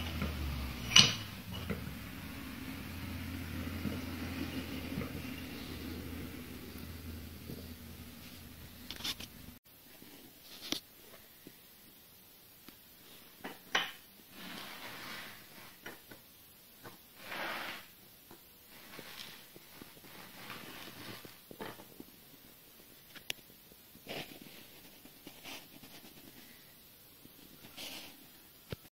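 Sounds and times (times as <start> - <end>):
bench vise clicking and scraping: 0.0 - 1.9.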